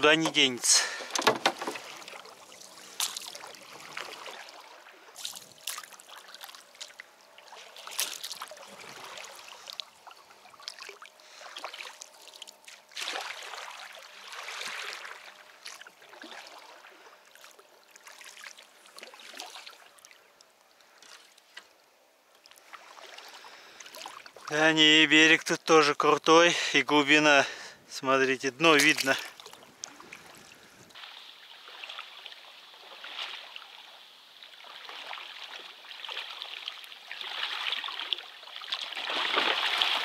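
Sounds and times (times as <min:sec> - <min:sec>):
water trickling: 0:00.0 - 0:21.5
paddle pulling through water: 0:00.0 - 0:21.8, 0:22.4 - 0:24.7, 0:28.6 - 0:40.0.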